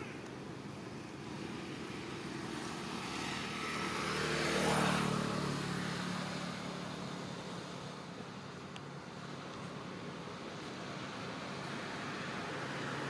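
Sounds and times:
vehicle engine passing: 0:01.1 - 0:08.2.

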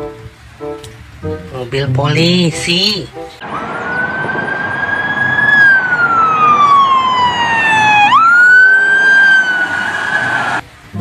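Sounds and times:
police siren wailing: 0:03.4 - 0:10.6.

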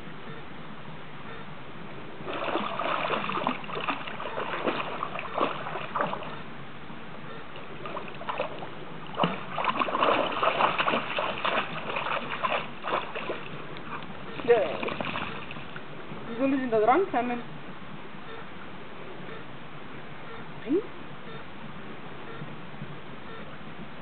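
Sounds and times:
dog splashing in water: 0:02.3 - 0:06.4, 0:07.8 - 0:15.8.

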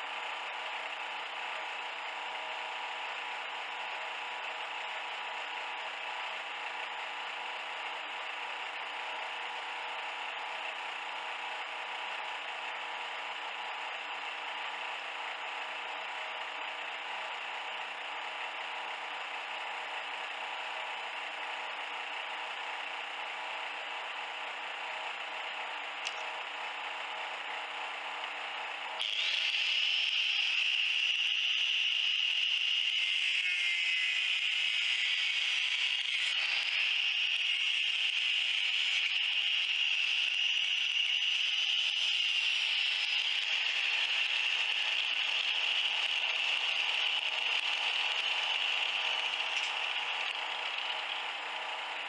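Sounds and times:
steady mechanical noise: 0:00.0 - 0:52.0
angle grinder whining: 0:29.0 - 0:52.0.

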